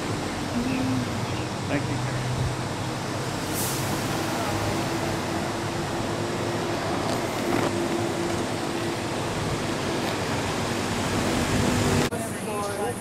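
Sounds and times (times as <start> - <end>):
skate wheels rolling on pavement: 5.1 - 12.9.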